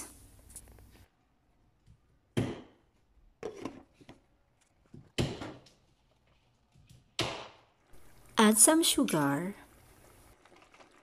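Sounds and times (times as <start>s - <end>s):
kitchen knocks and clunks: 2.3s - 4.2s, 4.8s - 6.0s, 6.8s - 7.8s.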